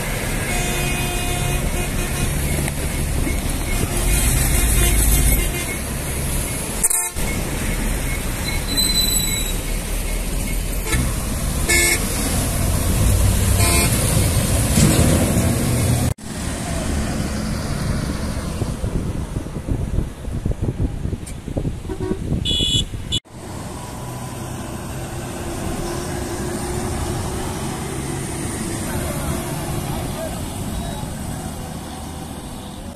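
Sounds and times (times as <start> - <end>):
buses passing on highway: 0.0 - 32.9
horn blasts: 0.4 - 2.4, 10.8 - 12.0, 13.6 - 14.0, 21.9 - 22.9.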